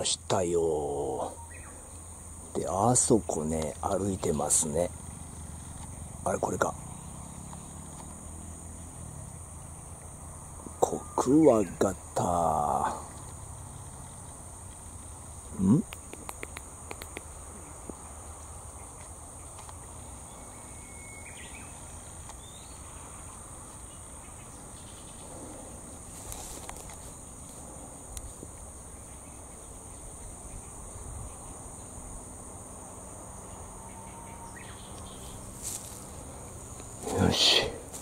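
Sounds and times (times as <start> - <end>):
faint outdoor hiss: 0.0 - 38.0
high-pitched insect chorus: 0.0 - 38.0
faint clicks: 15.8 - 18.0.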